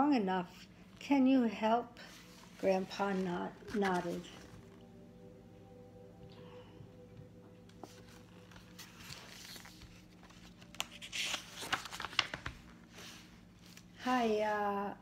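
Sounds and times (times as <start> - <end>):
faint steady hum: 0.0 - 15.0
paper rustling: 2.0 - 4.8, 7.7 - 14.0.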